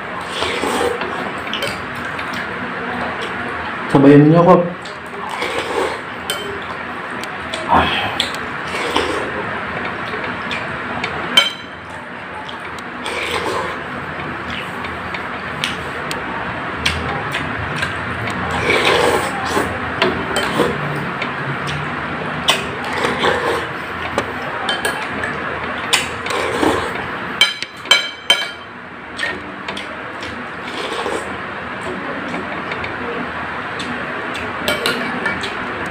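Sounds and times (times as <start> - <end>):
eating sounds: 4.8 - 11.2, 11.9 - 16.2, 16.8 - 24.1.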